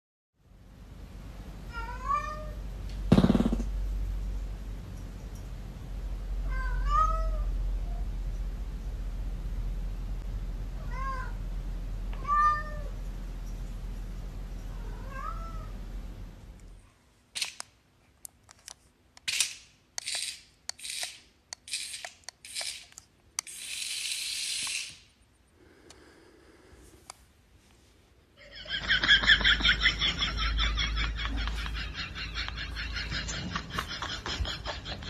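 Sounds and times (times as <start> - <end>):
steady low hum: 0.4 - 23.5, 25.0 - 35.0
cat meowing: 1.7 - 2.6, 6.4 - 8.0, 12.2 - 12.9, 14.7 - 15.7.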